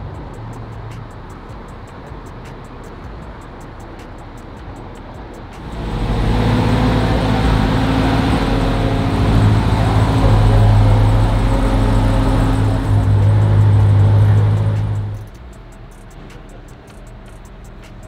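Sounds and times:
car engine running: 0:00.0 - 0:18.0.

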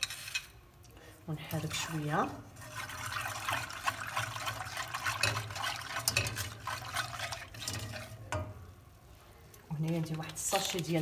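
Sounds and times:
low steady hum: 0:00.0 - 0:11.0
whisk wires ticking against pan: 0:01.5 - 0:08.8
milk swishing and sloshing: 0:01.7 - 0:08.3.

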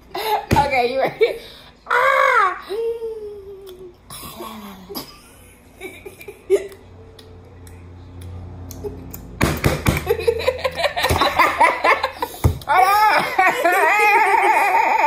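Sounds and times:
loud laughter: 0:10.0 - 0:15.0.

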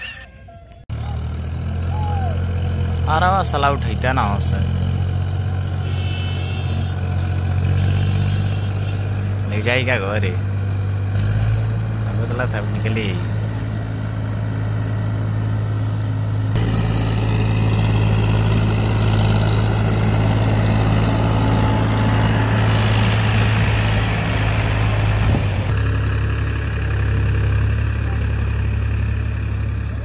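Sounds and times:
tractor diesel engine running: 0:00.9 - 0:30.0
water and mud churning: 0:20.2 - 0:25.8.

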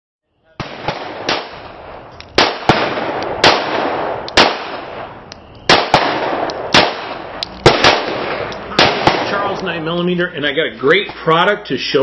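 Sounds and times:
handgun shots with echo: 0:05.7 - 0:09.6.

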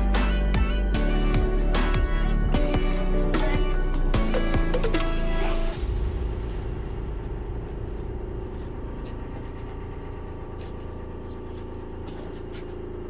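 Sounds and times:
small engine idling: 0:07.4 - 0:13.0.

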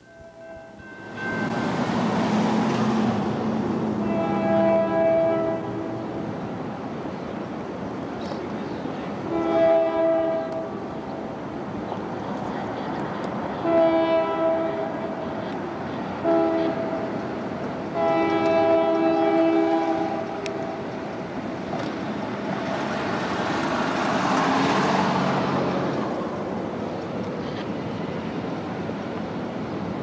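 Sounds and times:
locomotive engines and rolling noise: 0:00.0 - 0:30.0
locomotive air horn blasts: 0:04.0 - 0:06.2, 0:09.3 - 0:10.8, 0:13.6 - 0:15.0, 0:16.2 - 0:17.1, 0:17.9 - 0:20.8.

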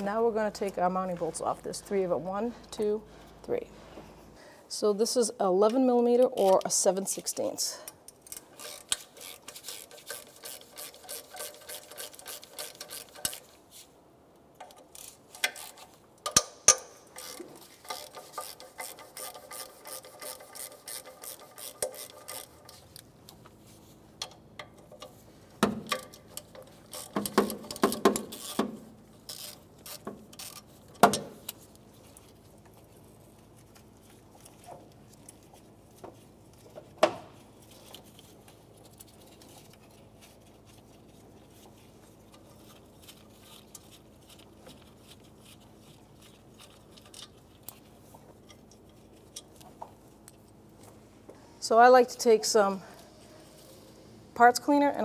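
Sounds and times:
ratchet wrench clicking: 0:08.3 - 0:13.4, 0:14.6 - 0:22.8, 0:25.9 - 0:28.6.

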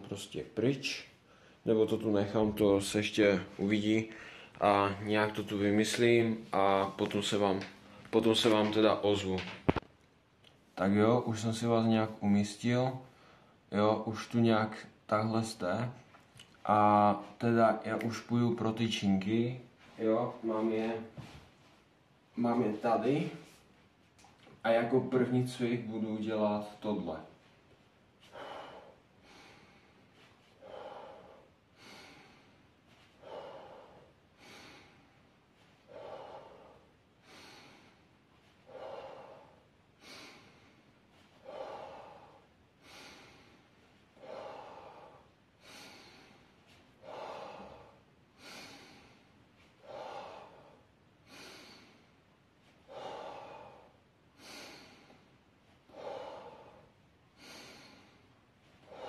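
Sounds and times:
man breathing hard: 0:04.1 - 0:04.6, 0:28.2 - 0:59.0.

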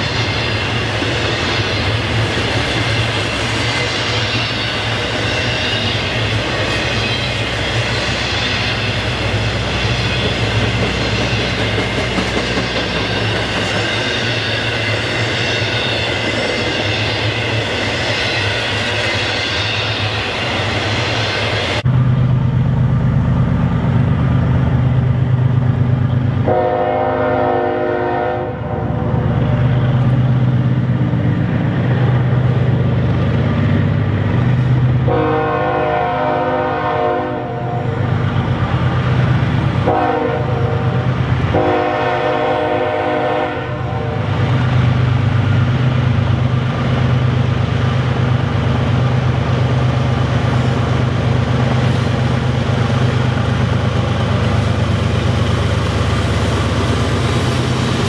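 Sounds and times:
locomotive engine rumble: 0:19.3 - 0:58.0
locomotive air horn: 0:26.4 - 0:29.2, 0:35.1 - 0:38.0, 0:39.8 - 0:44.3.

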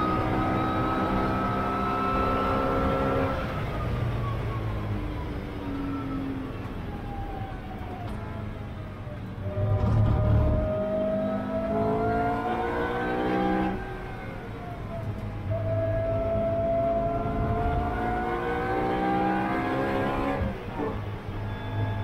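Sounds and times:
car engine revving: 0:09.5 - 0:14.2, 0:15.5 - 0:22.0.

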